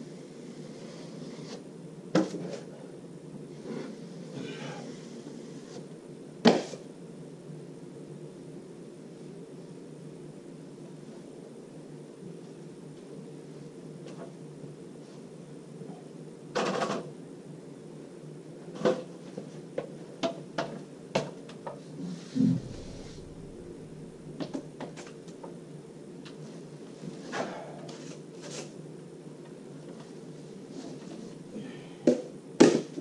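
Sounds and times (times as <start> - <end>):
steady low hum: 21.8 - 33.0.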